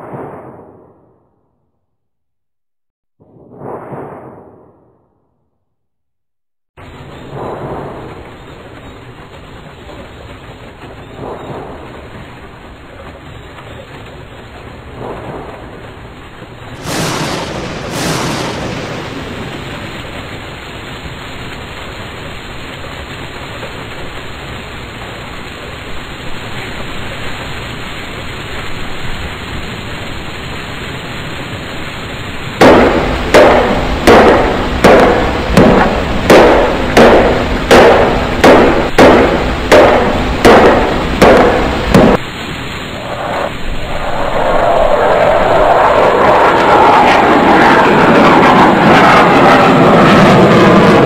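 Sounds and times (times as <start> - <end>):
noisy rumble: 6.8 - 27.0, 31.3 - 51.0
heavy bangs: 16.8 - 20.6, 32.6 - 42.2.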